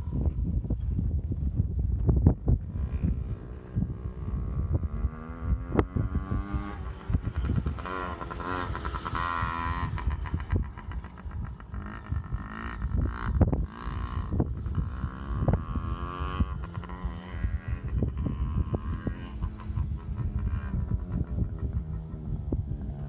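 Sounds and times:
wind thumps on microphone: 0.0s - 23.0s
dirt bike engine revving: 2.6s - 23.0s.

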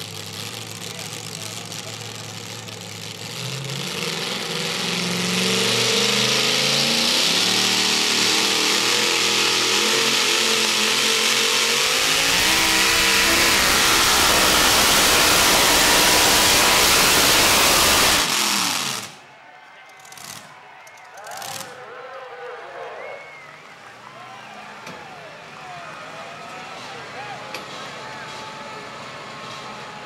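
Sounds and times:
truck engine revving: 0.0s - 19.3s.

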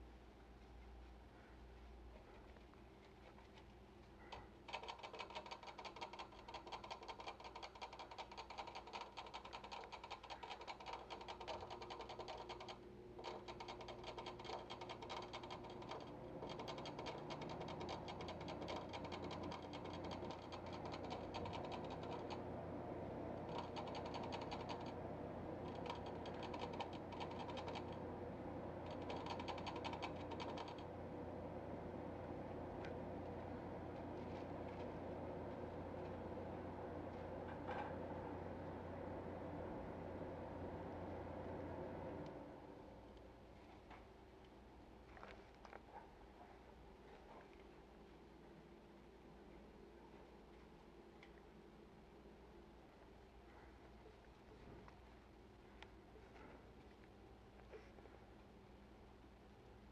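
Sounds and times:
hamster gnawing food: 2.6s - 31.1s.

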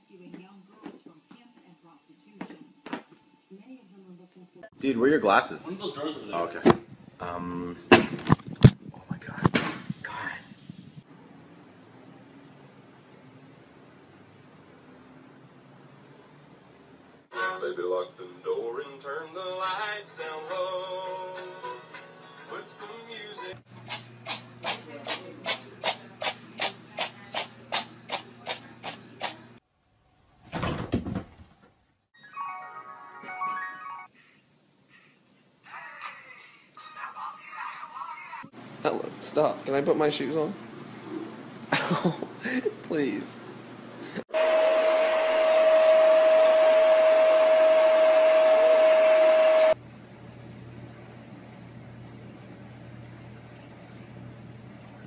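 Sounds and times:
electric appliance motor whirring: 44.4s - 49.8s.

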